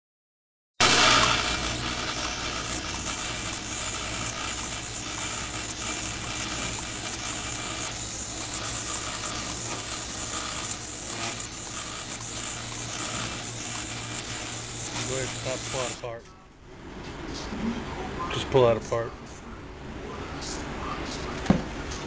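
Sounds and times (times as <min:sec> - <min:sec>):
low motor hum: 0:00.8 - 0:16.0
even hiss: 0:03.7 - 0:16.1.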